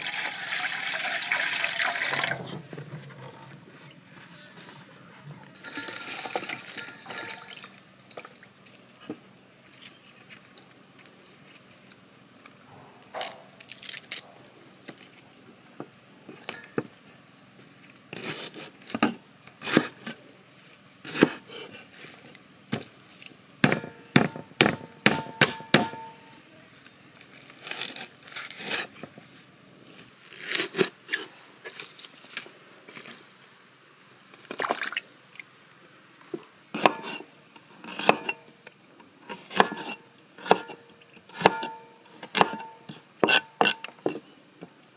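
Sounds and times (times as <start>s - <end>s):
cleaver chopping on wooden block: 23.6s - 26.1s.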